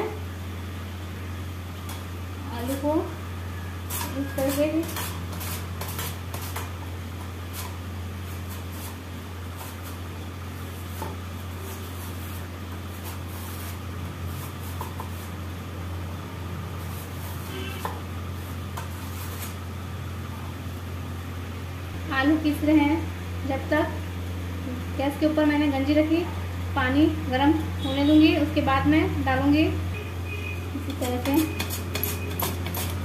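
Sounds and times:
potato scraping on slicer: 3.8s - 15.4s, 16.7s - 19.6s, 30.8s - 33.0s.

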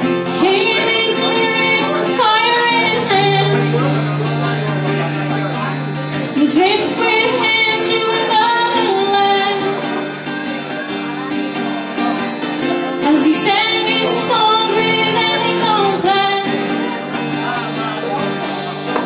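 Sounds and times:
strummed acoustic guitar: 0.0s - 19.0s
woman singing: 0.3s - 4.2s, 6.4s - 9.9s, 13.0s - 17.0s.

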